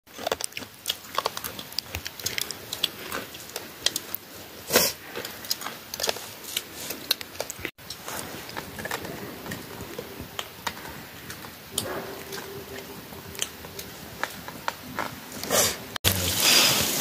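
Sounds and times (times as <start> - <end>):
campfire crackling and popping: 0.1 - 17.0.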